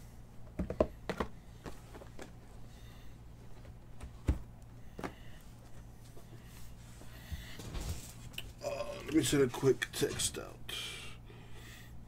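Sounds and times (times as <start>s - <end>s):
low steady hum: 0.0s - 12.0s
card boxes tapping on tabletop: 0.6s - 1.4s.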